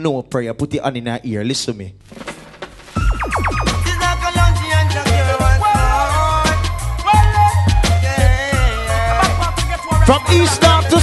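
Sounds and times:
reggae song with bassline: 2.8s - 11.0s
person singing: 3.6s - 7.3s.

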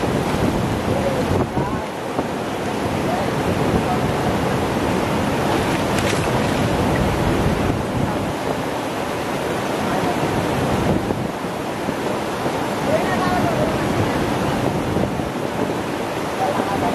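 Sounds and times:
river water against rocks: 0.0s - 16.9s
wind on microphone: 0.0s - 16.9s.

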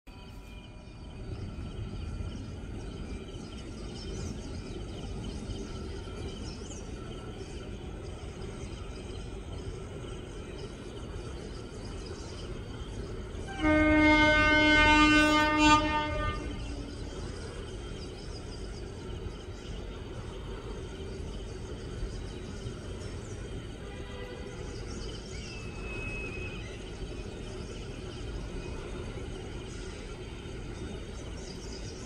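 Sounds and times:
train rumble: 0.1s - 32.0s
train horn blast: 13.4s - 17.1s, 23.9s - 24.7s.

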